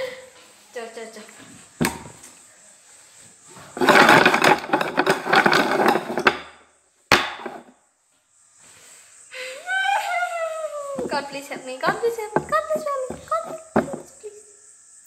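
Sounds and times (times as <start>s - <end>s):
bowls scraping on wooden table: 3.5s - 6.6s, 7.2s - 7.7s, 11.9s - 14.1s
bowl knocking on table: 7.1s - 7.6s, 11.9s - 14.1s.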